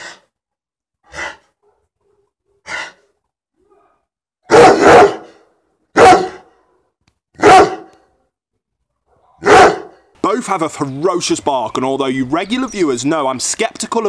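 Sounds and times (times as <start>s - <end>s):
dog barking: 1.1s - 3.0s, 3.7s - 6.5s, 7.4s - 8.0s, 9.0s - 10.0s.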